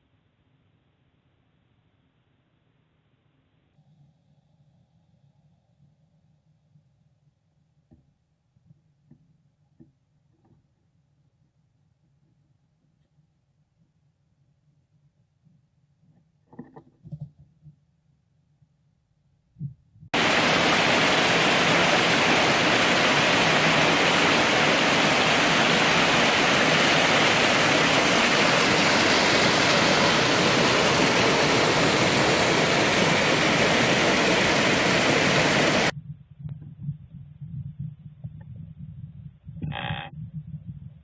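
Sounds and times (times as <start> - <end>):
stream rushing over rocks: 20.2 - 35.9.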